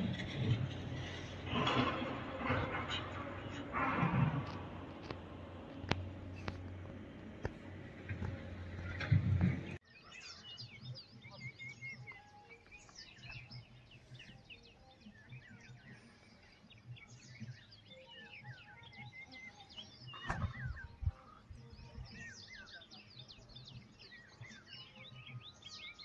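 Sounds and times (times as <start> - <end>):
small birds chirping: 8.7 - 26.0.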